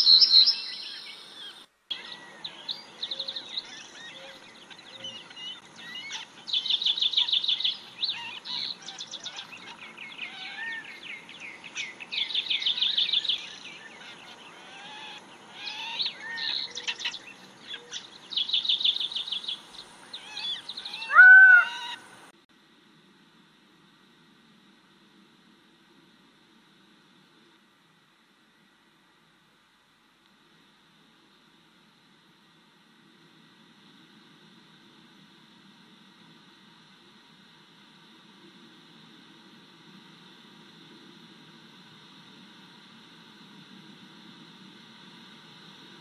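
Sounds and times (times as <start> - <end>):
bird chirps and whistles: 0.0 - 1.2, 20.2 - 22.0
birds fast high trills: 0.0 - 22.2
lower bird call: 0.0 - 22.2.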